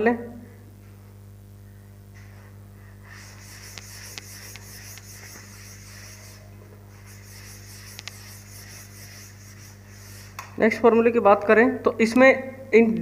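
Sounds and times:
steady low hum: 0.0s - 11.0s
duster rubbing blackboard: 2.9s - 10.4s.

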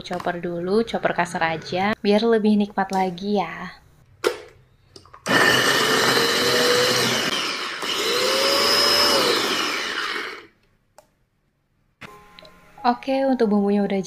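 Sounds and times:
electric food chopper running: 5.3s - 10.5s.

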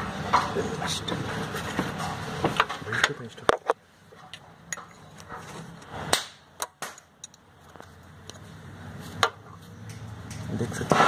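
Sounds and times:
metallic clicks and knocks: 6.6s - 7.5s.

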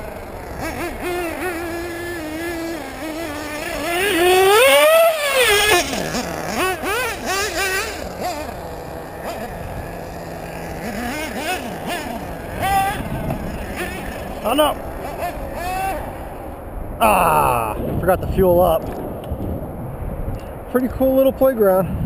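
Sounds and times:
model engine revving: 0.0s - 16.4s.

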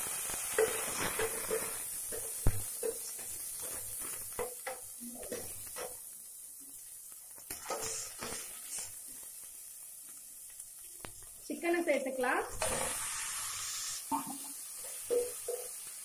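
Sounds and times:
small pops and crackles: 0.0s - 11.4s
spices frying in oil: 0.0s - 16.0s.

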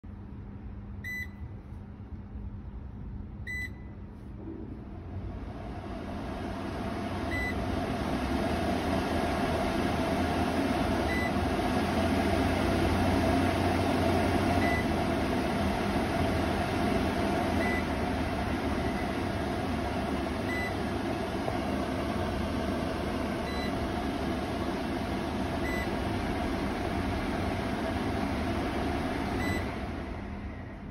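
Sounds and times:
short electronic beeps: 3.5s - 3.9s
extractor fan rushing air: 4.2s - 30.9s.

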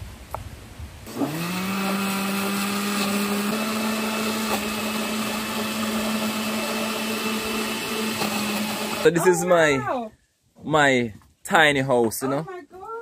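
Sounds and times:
electric blender running: 1.1s - 9.2s.

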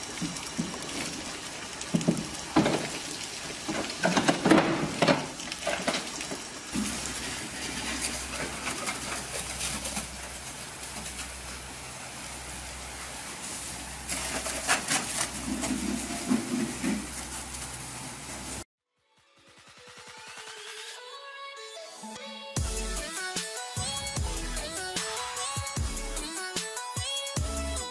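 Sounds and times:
hose water jet hissing: 6.6s - 18.6s.

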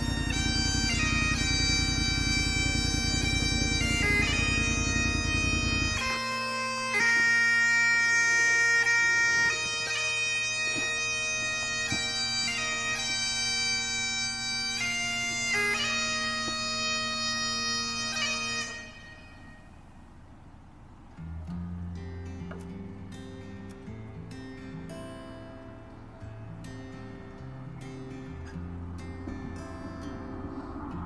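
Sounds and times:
low rumble: 0.0s - 6.3s, 28.4s - 31.0s
bagpipes playing slow tune: 0.0s - 20.2s, 26.2s - 31.0s.

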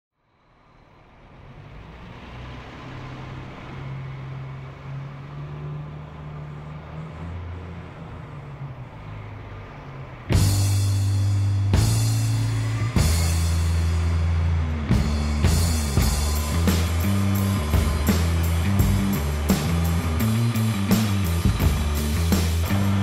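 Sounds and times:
low rumbling drone: 5.6s - 23.0s.

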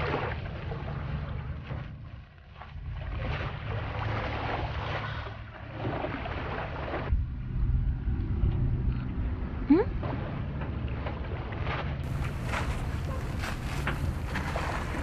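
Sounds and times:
wind on microphone: 12.0s - 15.0s.

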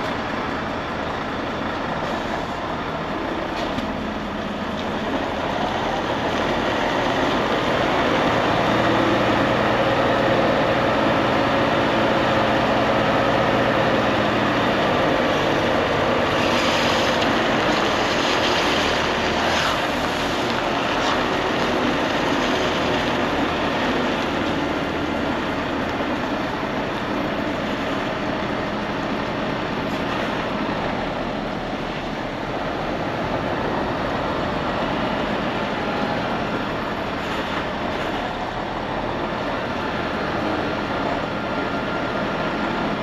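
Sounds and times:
truck diesel engine running: 0.0s - 43.0s.

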